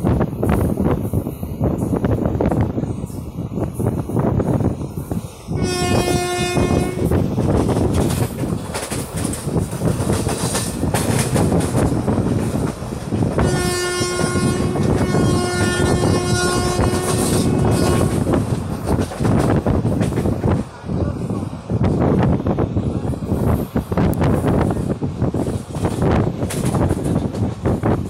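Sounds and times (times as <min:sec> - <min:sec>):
train coach rumble and rattle: 0:00.0 - 0:28.0
wind at open door: 0:00.0 - 0:28.0
train horn blasts: 0:05.5 - 0:07.2, 0:13.3 - 0:18.4.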